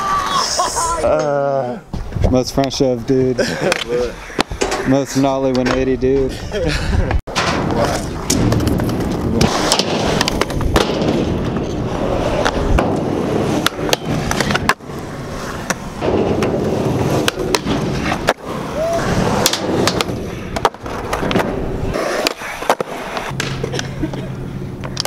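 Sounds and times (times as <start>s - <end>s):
skateboard wheels rolling on concrete: 0.0s - 25.0s
skateboard clacks: 15.6s - 24.2s.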